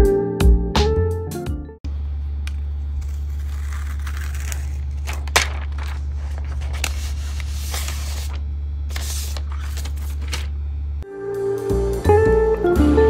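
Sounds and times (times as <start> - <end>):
steady low hum: 1.8 - 11.2
paper wrap rustling and crinkling: 2.9 - 10.5.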